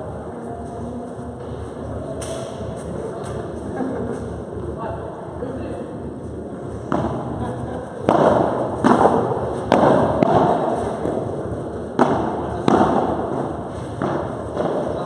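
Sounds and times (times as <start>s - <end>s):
padel ball hit with rackets: 8.0s - 11.2s, 12.0s - 15.0s.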